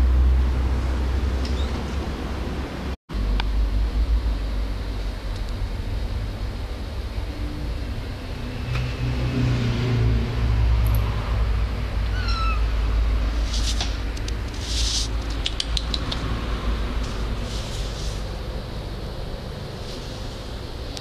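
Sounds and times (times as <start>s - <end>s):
kitten meowing: 1.5s - 1.8s, 12.1s - 12.7s
claws scratching on clothing: 14.5s - 15.3s.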